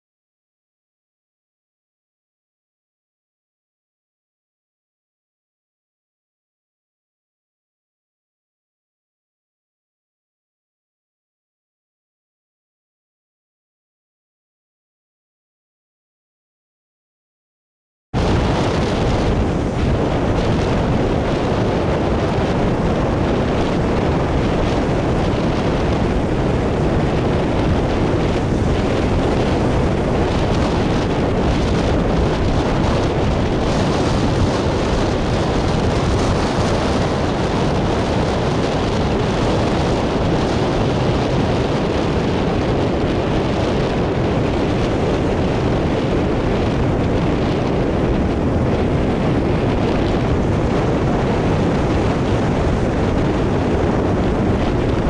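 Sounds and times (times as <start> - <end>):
wind buffeting microphone: 18.2 - 55.0.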